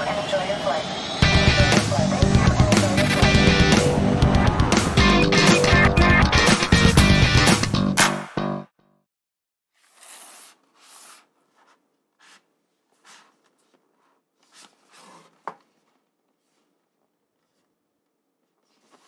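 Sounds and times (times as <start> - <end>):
packaging rubbing and sliding: 9.8 - 15.9.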